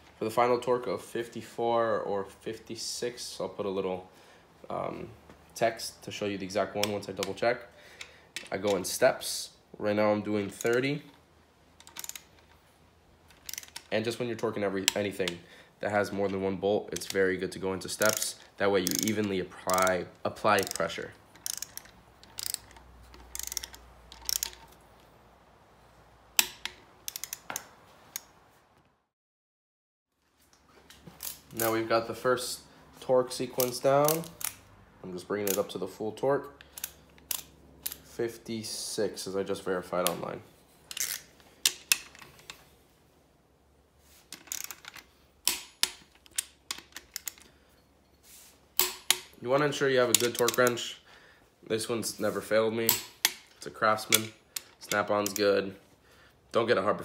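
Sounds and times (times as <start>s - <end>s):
sharp wrench click: 11.8s - 12.4s, 13.4s - 13.9s, 18.0s - 19.9s, 20.5s - 24.7s, 26.4s - 28.3s, 40.9s - 42.1s, 48.8s - 49.4s
torque wrench ratchet clicking: 11.8s - 12.5s, 13.4s - 13.9s, 18.0s - 24.7s, 26.4s - 27.5s, 40.9s - 42.0s, 44.5s - 44.8s.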